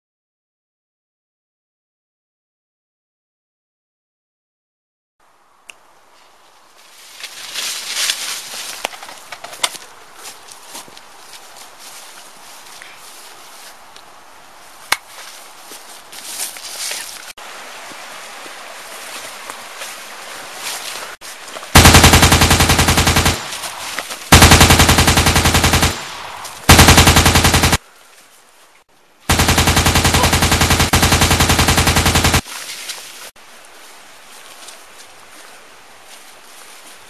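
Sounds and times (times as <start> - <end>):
automatic rifle fire: 21.8 - 23.7, 24.3 - 27.8, 29.3 - 32.4.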